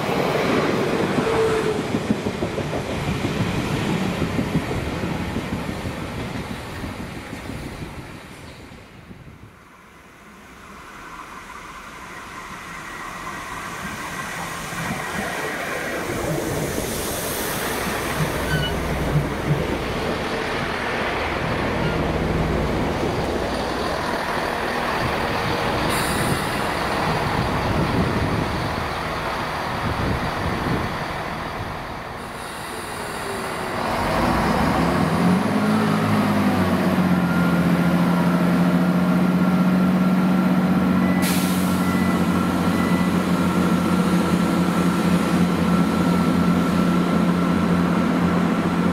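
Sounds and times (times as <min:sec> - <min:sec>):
train wheels on rail: 0:00.0 - 0:48.9
diesel engines idling: 0:13.8 - 0:48.9.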